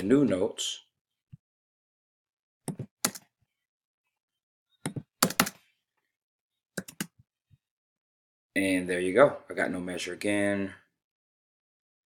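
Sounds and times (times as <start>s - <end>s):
keyboard keys tapping: 2.7s - 3.2s, 4.8s - 5.6s, 6.8s - 7.2s.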